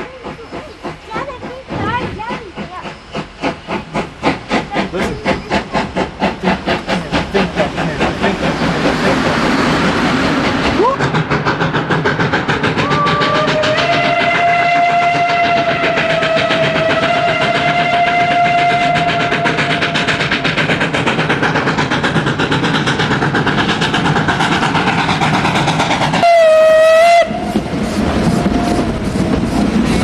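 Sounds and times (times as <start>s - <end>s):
rhythmic beat of moving train: 0.0s - 30.0s
steam locomotive whistle: 12.8s - 20.3s, 26.2s - 27.7s.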